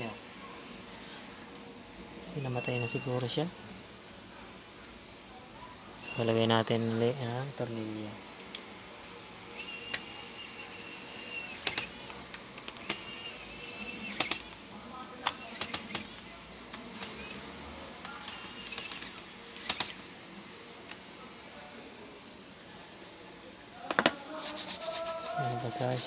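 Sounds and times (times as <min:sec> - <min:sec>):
electric screwdriver motor whir: 0:09.5 - 0:20.2
sharp clicks: 0:11.5 - 0:13.2, 0:14.0 - 0:17.4, 0:18.0 - 0:20.1.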